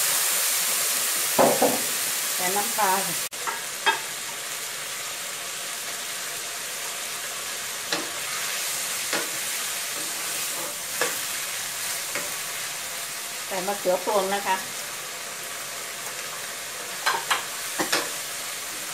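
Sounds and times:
food sizzling in a wok: 0.0 - 18.9.

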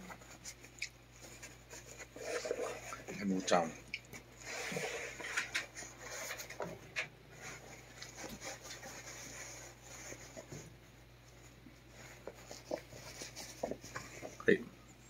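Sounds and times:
rubbing and light scraping: 0.0 - 14.6.

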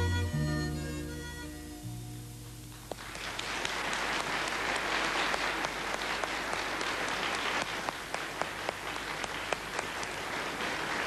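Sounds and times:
studio audience applauding: 2.7 - 11.0.

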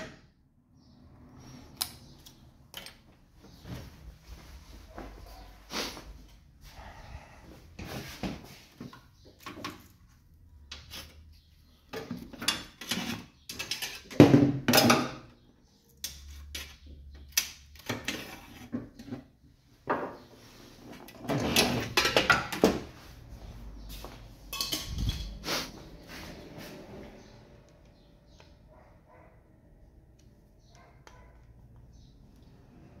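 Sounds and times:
objects knocking and scraping: 10.7 - 15.4, 16.0 - 23.1, 23.9 - 26.5.

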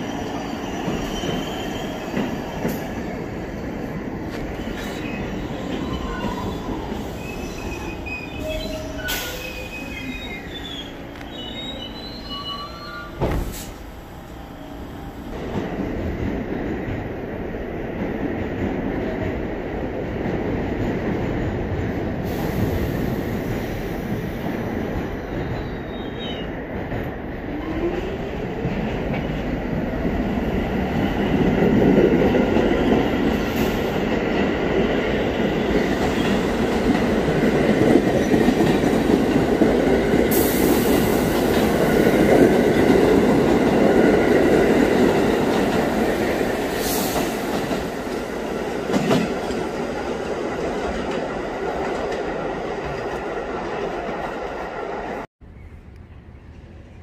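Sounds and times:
train wheels rumbling on rails: 0.0 - 55.3
clickety-clack over rail joints: 0.8 - 3.1, 26.7 - 46.1, 46.8 - 55.3
faint wheel squeal: 4.6 - 13.8.

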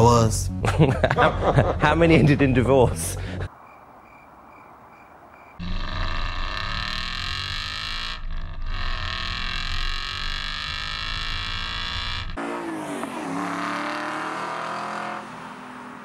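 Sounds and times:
car engines revving: 12.4 - 16.0.

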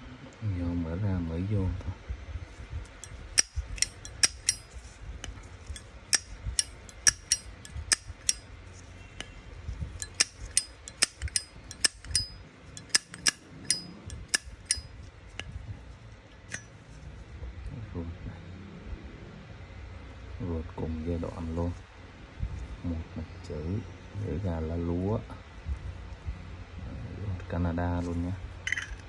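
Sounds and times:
lighter lid clinking: 10.0 - 14.8.

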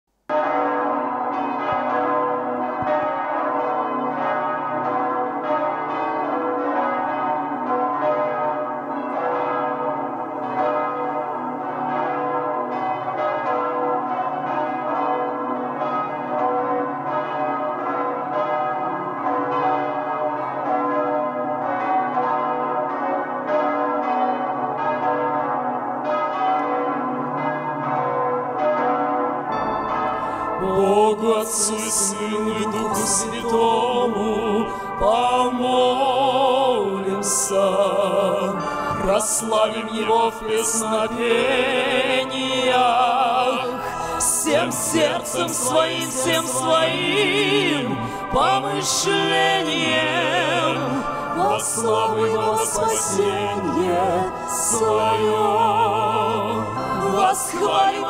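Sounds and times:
church bells ringing: 0.3 - 58.0.

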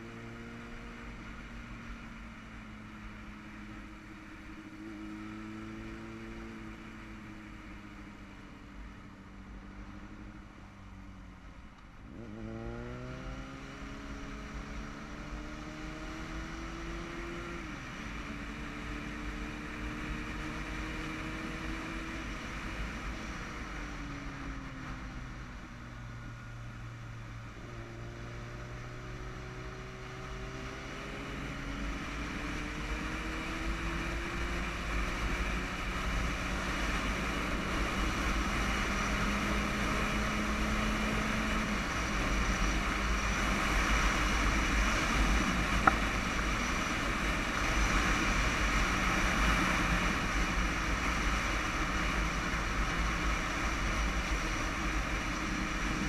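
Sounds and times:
motorcycle engine revving: 12.1 - 23.5, 27.2 - 56.0.

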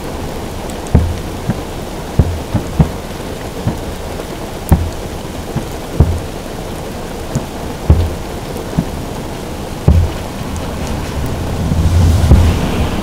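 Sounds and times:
rain drumming on a car roof: 0.0 - 13.0
distant fireworks booming: 0.9 - 3.9, 4.7 - 6.4, 9.8 - 13.0.

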